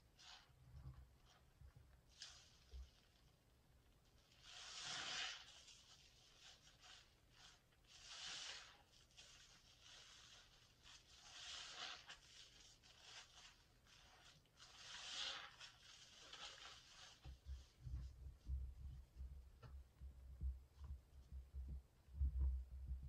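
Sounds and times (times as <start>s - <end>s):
soapy sponge squelching: 4.2s - 17.8s.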